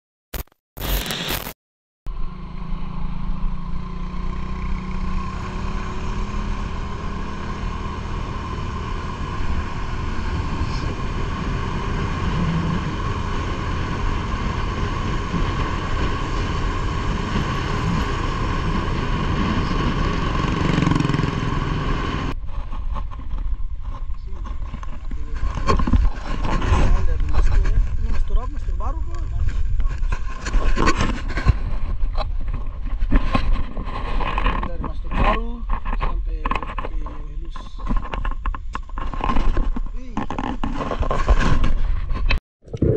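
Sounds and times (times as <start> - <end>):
motorcycle engine running: 2.1 - 22.5
wind noise: 5.2 - 42.9.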